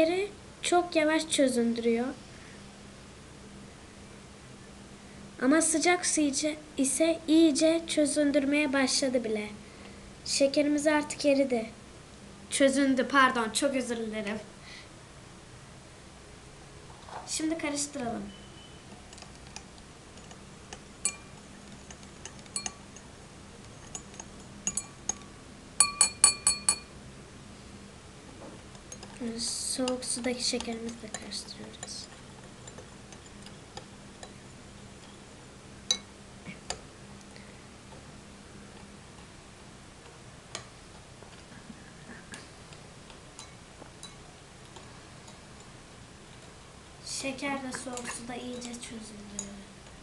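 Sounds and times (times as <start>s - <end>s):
low steady hum: 0.0s - 50.0s
spoon clinking against glass: 21.0s - 22.8s, 23.7s - 26.9s, 35.9s - 36.1s, 43.4s - 44.2s.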